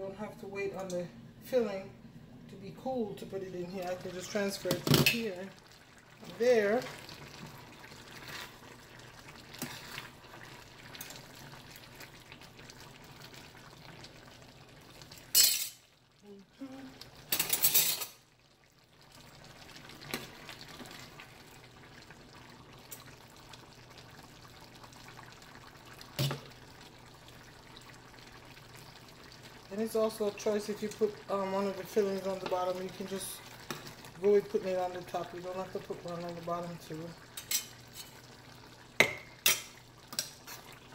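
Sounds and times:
metal ladle clinking on skillet: 15.4 - 15.8.

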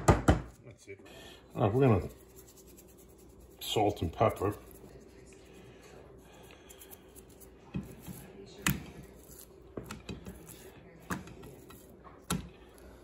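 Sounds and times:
knocks and clicks at kitchen counter: 0.0 - 0.6.

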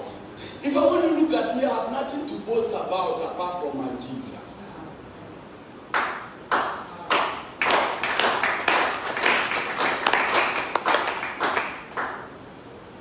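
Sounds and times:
congregation clapping: 5.9 - 12.4.

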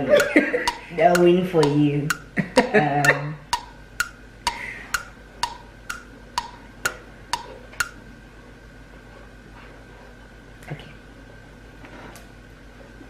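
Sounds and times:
sharp ticks with ringing tone: 0.1 - 8.0.

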